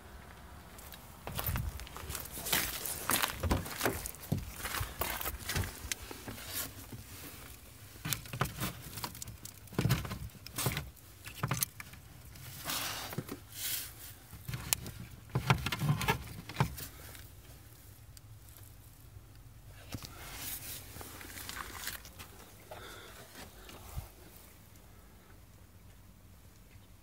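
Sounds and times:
clothing rustling: 0:19.8 - 0:24.5.

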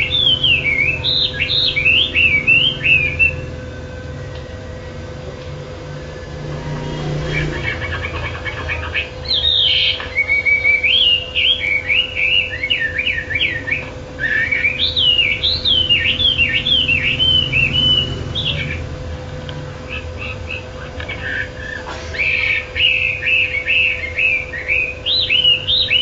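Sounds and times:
songbird warbling: 0:00.0 - 0:03.5, 0:06.0 - 0:18.9, 0:19.8 - 0:26.0
faint steady hum: 0:00.0 - 0:26.0
bird chattering notes: 0:06.3 - 0:18.9, 0:19.8 - 0:26.0.

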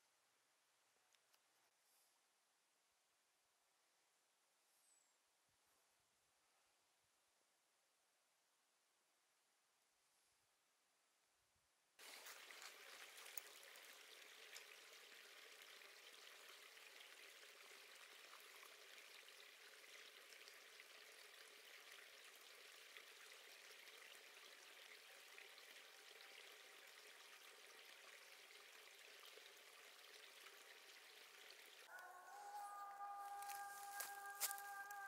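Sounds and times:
stream trickling over rocks: 0:12.0 - 0:31.9.

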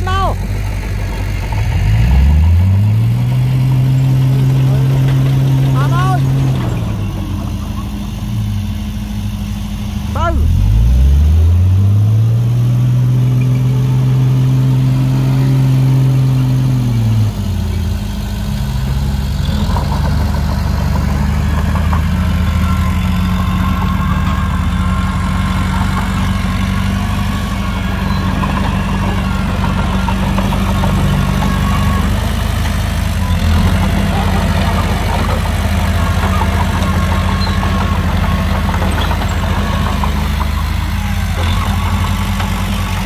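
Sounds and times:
heavy diesel engine revving: 0:00.0 - 0:43.0
rattling and clatter: 0:33.6 - 0:43.0.

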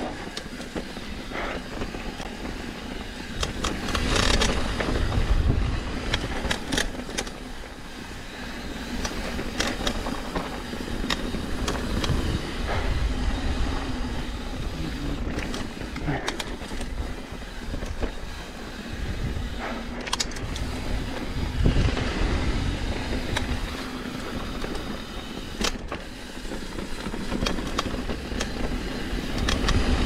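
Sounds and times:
bike chain and frame rattling: 0:00.0 - 0:30.0
bike tyres rumbling on dirt: 0:00.0 - 0:30.0
wind on microphone: 0:03.9 - 0:06.5, 0:16.8 - 0:24.6.

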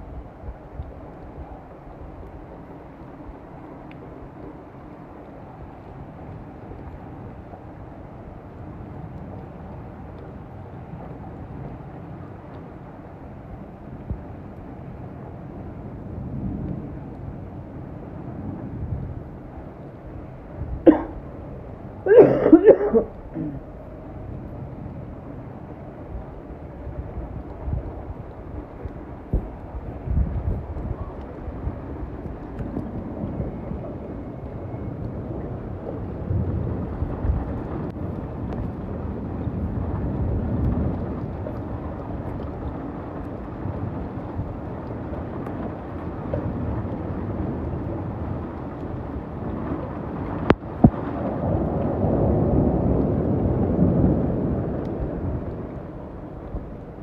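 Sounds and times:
rain falling: 0:00.0 - 0:57.0
wind with low rumble: 0:00.0 - 0:57.0
person clearing throat: 0:20.9 - 0:21.2, 0:22.1 - 0:23.6
person coughing: 0:20.9 - 0:21.2, 0:22.1 - 0:23.6.

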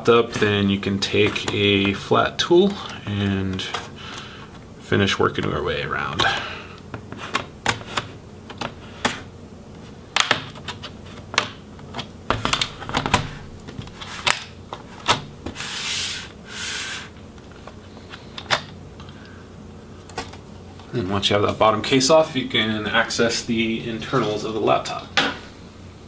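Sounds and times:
short rubbing scrapes: 0:15.5 - 0:17.2.

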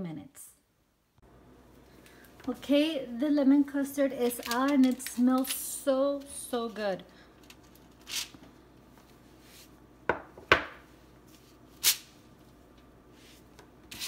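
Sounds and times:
baking dishes knocking: 0:10.1 - 0:10.8.

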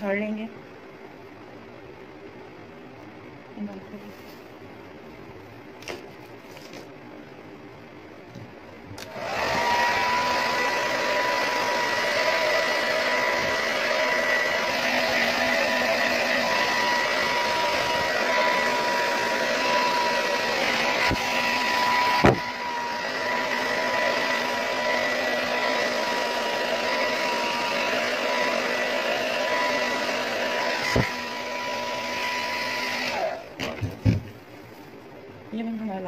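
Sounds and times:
hair dryer blowing with whine: 0:09.0 - 0:34.3.

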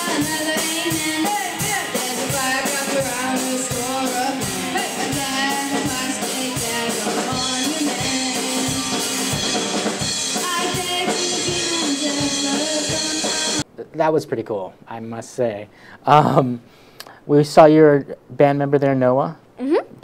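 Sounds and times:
electric guitar: 0:00.0 - 0:13.6
girl singing lead: 0:00.0 - 0:13.6
drum kit beat: 0:00.0 - 0:13.7.

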